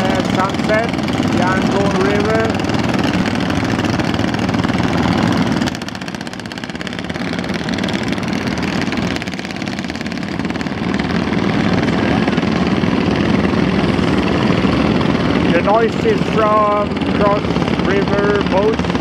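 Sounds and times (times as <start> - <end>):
boat engines droning: 0.0 - 19.0.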